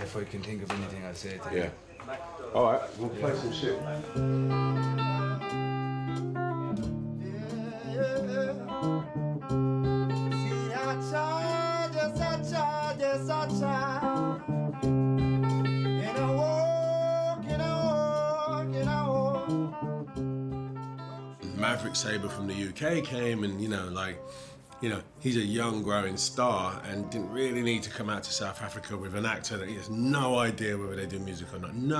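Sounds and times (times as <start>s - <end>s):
guitar playing: 3.0s - 31.9s
man singing: 7.2s - 9.1s, 10.2s - 14.4s, 15.9s - 19.8s, 21.4s - 31.9s.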